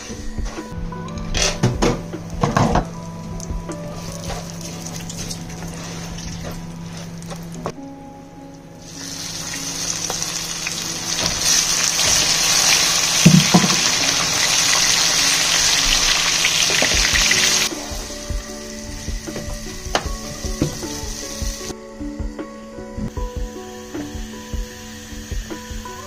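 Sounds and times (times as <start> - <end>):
food sizzling in hot oil: 8.8 - 21.7.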